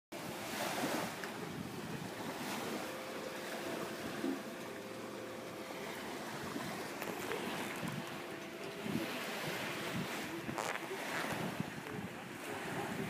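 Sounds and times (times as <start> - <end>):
wind blowing over microphone: 0.2 - 2.9, 6.4 - 13.0
wind harp humming tones: 0.2 - 13.0.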